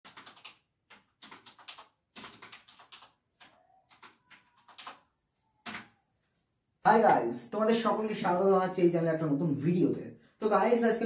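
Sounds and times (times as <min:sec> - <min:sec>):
keyboard typing: 0:00.0 - 0:06.0.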